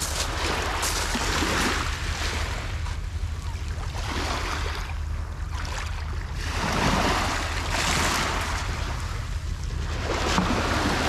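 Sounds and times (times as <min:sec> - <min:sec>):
waves lapping on pebble shore: 0:00.0 - 0:02.6
low wind rumble on microphone: 0:00.0 - 0:11.0.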